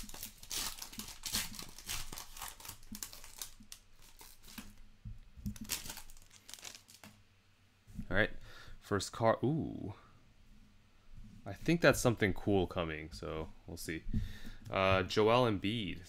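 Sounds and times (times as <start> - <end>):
foil wrapper crinkling and tearing: 0.0 - 4.8, 5.5 - 7.2.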